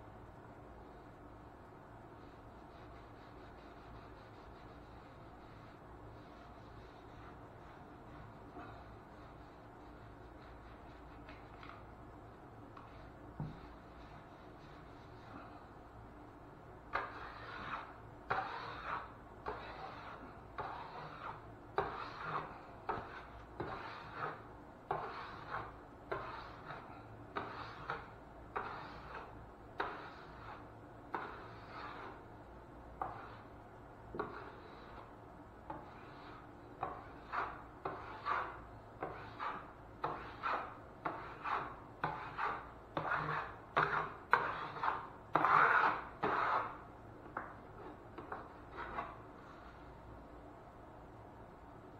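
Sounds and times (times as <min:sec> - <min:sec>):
drywall knife scraping: 0:16.9 - 0:32.3, 0:33.0 - 0:35.1, 0:35.7 - 0:46.8, 0:47.4 - 0:49.7.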